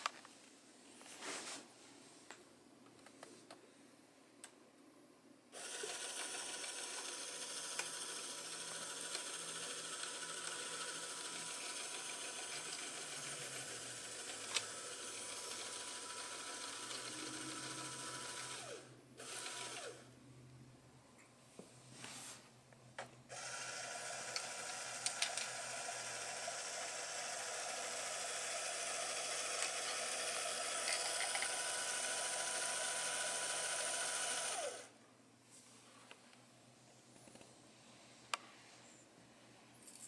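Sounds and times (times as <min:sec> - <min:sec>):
electric motor whirring: 0:05.6 - 0:20.0, 0:23.3 - 0:34.9.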